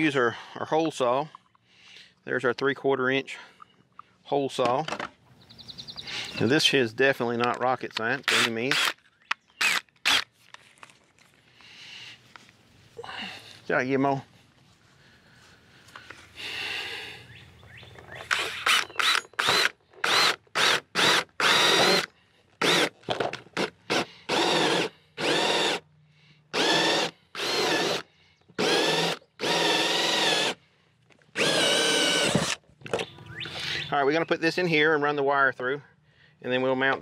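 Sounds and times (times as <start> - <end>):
power drill whining: 8.3 - 9.0, 9.6 - 10.3, 18.1 - 23.0, 23.6 - 25.8, 26.5 - 30.6, 31.3 - 33.9.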